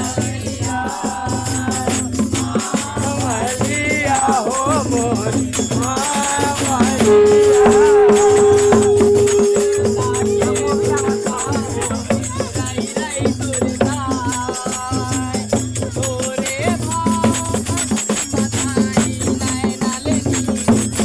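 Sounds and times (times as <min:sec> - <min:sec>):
devotional singing: 0:00.0 - 0:15.6
rattling percussion: 0:01.2 - 0:21.0
long held note: 0:07.0 - 0:12.6.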